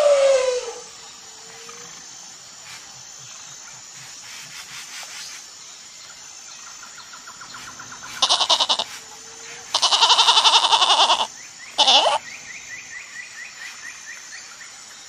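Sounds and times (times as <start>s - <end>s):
lamb bleating: 8.2s - 8.9s, 9.7s - 12.2s.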